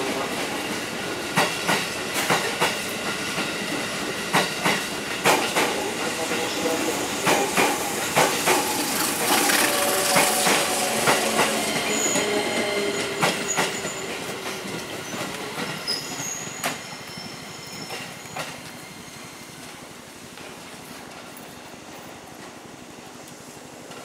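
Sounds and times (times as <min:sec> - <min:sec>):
train wheels clacking over rail joints: 0:00.1 - 0:18.8
high-pitched wheel squeals: 0:09.2 - 0:19.6.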